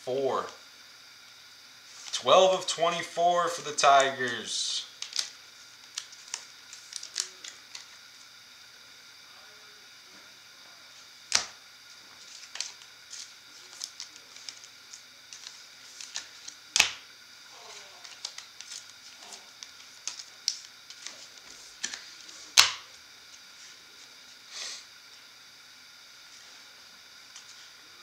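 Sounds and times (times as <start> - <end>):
cards clicking and ticking: 3.9 - 8.0, 11.3 - 11.6, 12.2 - 17.0, 18.0 - 22.9
sharp card snaps: 5.0 - 7.9, 11.3 - 11.6, 15.3 - 17.0, 21.8 - 22.9.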